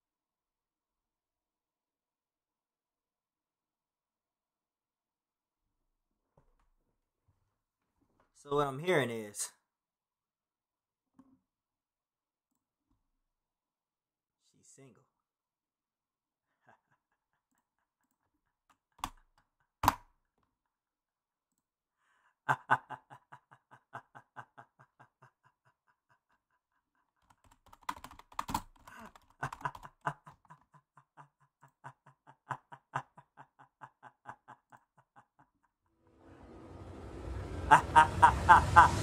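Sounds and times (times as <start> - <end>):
man laughing hard: 22.4 - 26.8, 28.9 - 35.7, 37.6 - 39.0.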